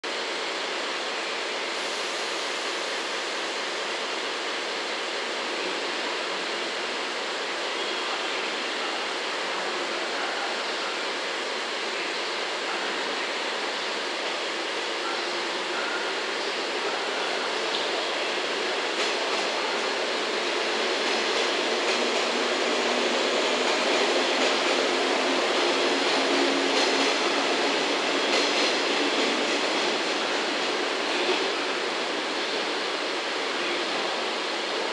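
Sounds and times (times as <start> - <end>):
electric train running: 14.3 - 34.9.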